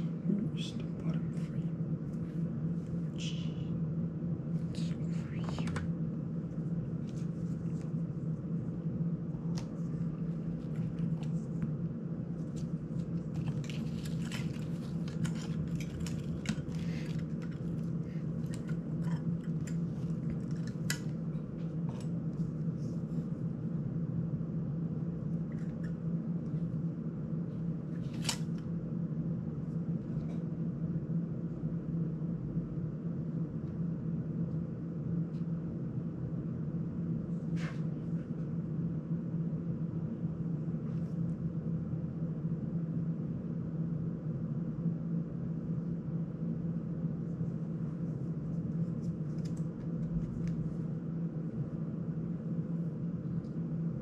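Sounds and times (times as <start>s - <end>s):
desk fan humming: 0.0s - 54.0s.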